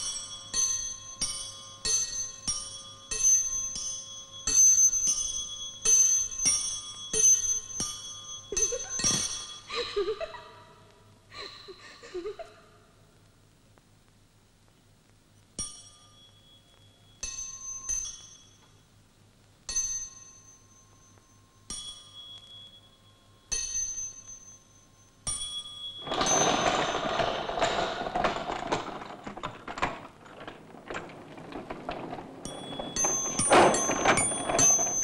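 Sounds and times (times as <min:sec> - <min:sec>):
dense clattering noise: 0:26.0 - 0:35.0.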